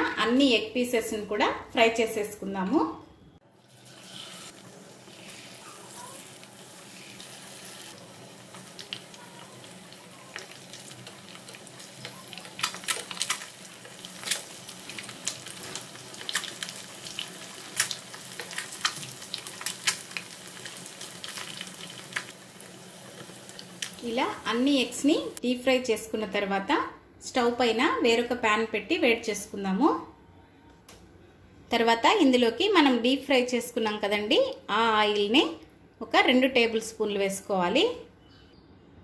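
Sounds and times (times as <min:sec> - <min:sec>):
food deep-frying in oil: 0:03.6 - 0:25.4
oil crackling pops: 0:10.3 - 0:22.4.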